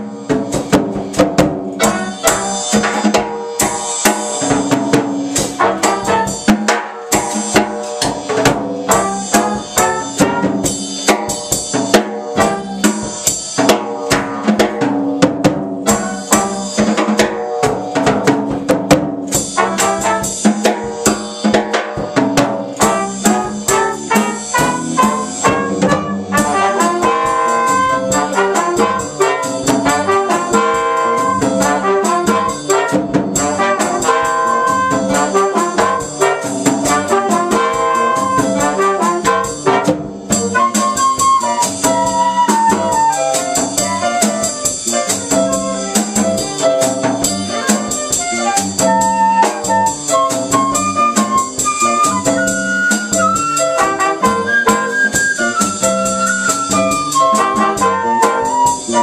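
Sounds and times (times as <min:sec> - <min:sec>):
latin jazz band playing: 0:00.0 - 0:59.0
trumpet and trombone: 0:01.8 - 0:04.8, 0:05.4 - 0:07.6, 0:08.3 - 0:14.7, 0:15.8 - 0:18.1, 0:19.3 - 0:21.2, 0:22.0 - 0:59.0.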